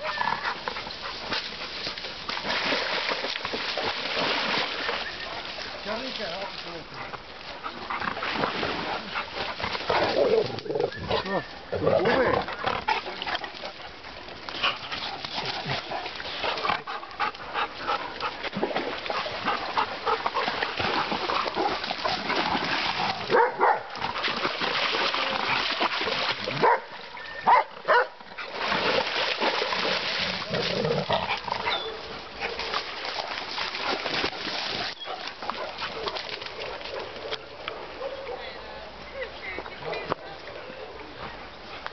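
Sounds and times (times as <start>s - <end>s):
dogs splashing through water: 0.0s - 41.9s
dogs barking: 23.3s - 23.9s, 26.6s - 26.9s, 27.5s - 28.2s.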